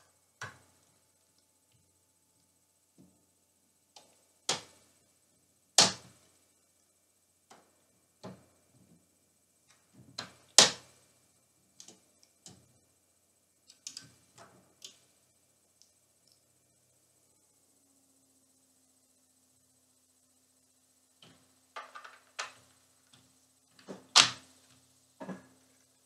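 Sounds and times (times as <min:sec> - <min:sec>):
sharp knocks and clicks: 0:21.2 - 0:25.6.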